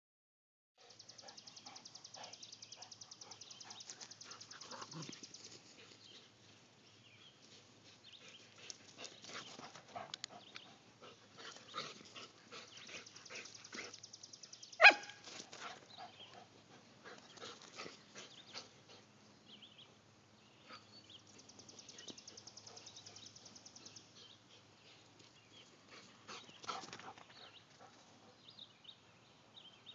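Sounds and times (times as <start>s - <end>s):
dog barking: 14.8s - 15.2s.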